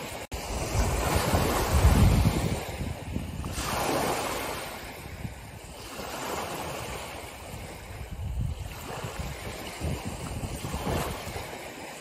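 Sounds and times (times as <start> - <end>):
small waves breaking on shore: 0.0 - 12.0.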